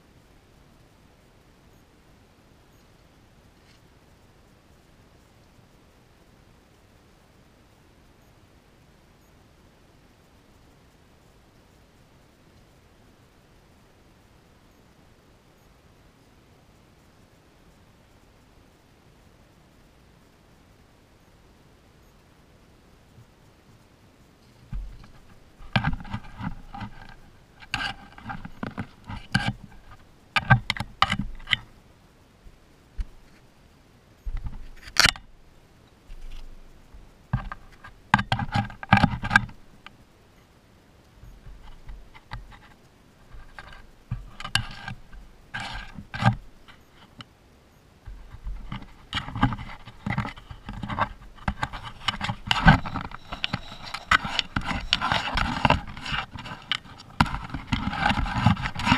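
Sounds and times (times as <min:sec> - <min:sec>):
scraping and scratching on camera: 0:03.5 - 0:03.9, 0:24.4 - 0:31.8, 0:33.0 - 0:33.5, 0:34.2 - 0:35.3, 0:36.0 - 0:40.0, 0:41.2 - 0:47.3, 0:48.0 - 0:58.9.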